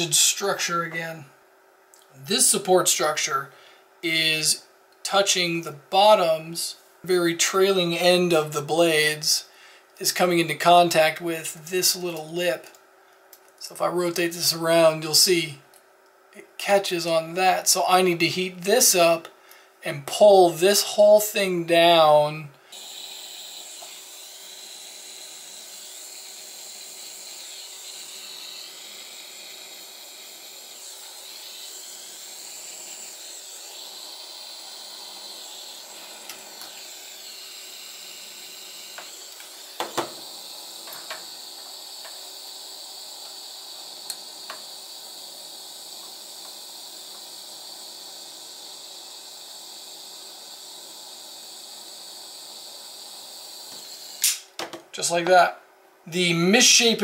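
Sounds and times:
hot-air tool hissing: 16.9s - 19.3s, 20.0s - 55.2s.

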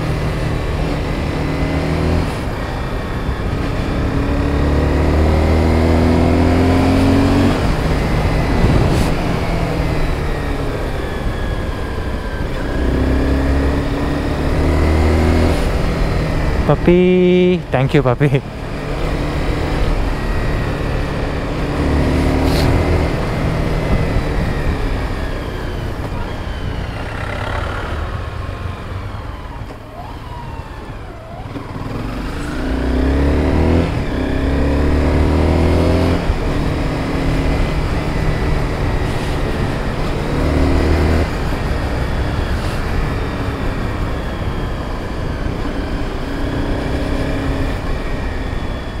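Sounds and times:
motorcycle engine revving: 0.0s - 17.7s, 18.4s - 29.5s, 30.2s - 49.0s
wind rush: 7.1s - 10.6s.

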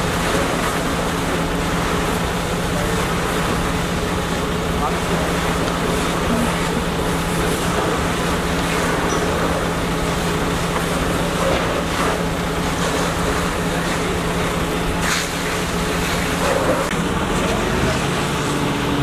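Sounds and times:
fire engine pumps running: 0.0s - 19.0s
rushing noise of building fire: 0.0s - 19.0s.

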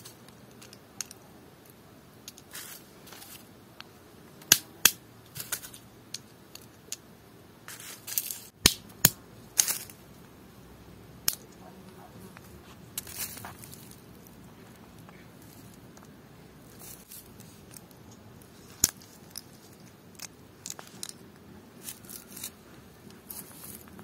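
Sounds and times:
crackly rustles: 0.0s - 7.0s, 7.7s - 8.6s, 11.2s - 24.0s
nut shells snapping and crunching: 20.1s - 21.2s.

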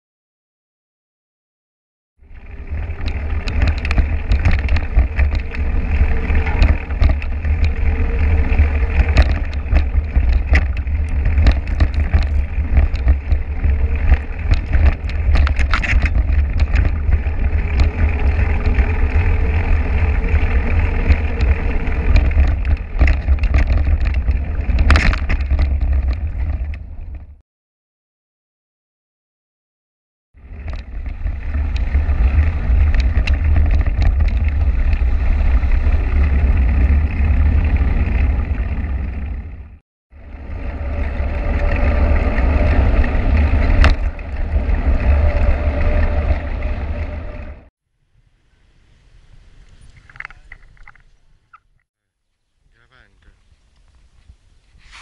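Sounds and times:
tyres on dirt road: 2.2s - 27.4s, 30.4s - 55.0s
bike clicks and rattles: 2.3s - 27.4s, 30.4s - 47.6s
wind buffeting microphone: 2.3s - 27.4s, 30.4s - 47.7s.

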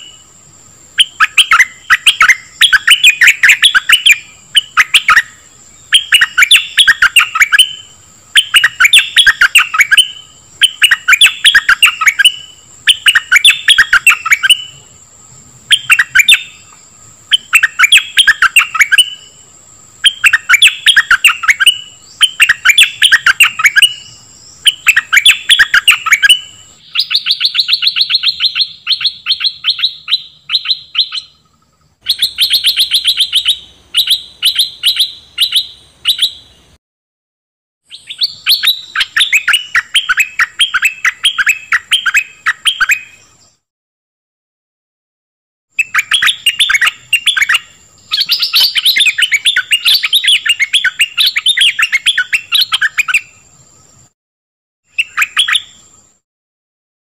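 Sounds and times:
bird singing chattering notes: 1.0s - 14.9s, 15.7s - 19.4s, 20.0s - 36.8s, 45.8s - 54.0s.

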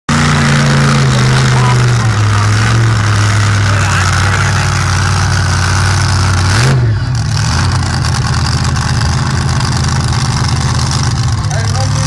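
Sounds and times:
engine revving: 0.1s - 12.0s
pickup truck engine idling: 0.1s - 12.0s.

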